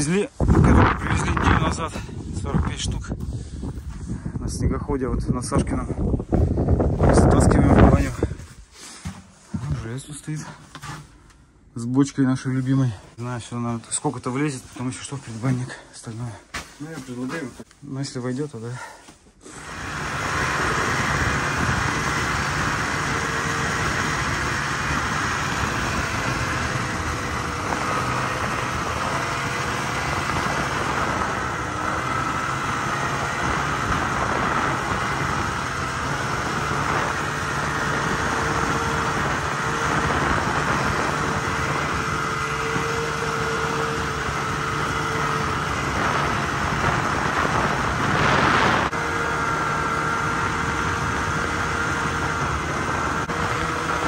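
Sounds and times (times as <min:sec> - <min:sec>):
snowmobile engine running: 0:19.5 - 0:54.0.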